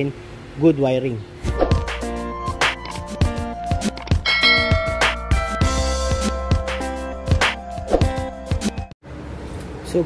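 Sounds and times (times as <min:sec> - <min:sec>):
background music with a beat: 0:01.5 - 0:09.0.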